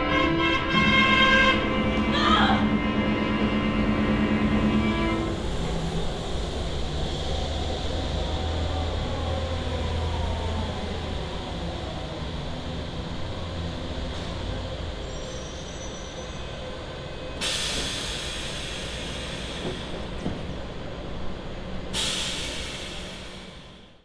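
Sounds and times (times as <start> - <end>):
subway train rumbling: 0.0 - 24.0
high wheel squeal: 15.0 - 16.6.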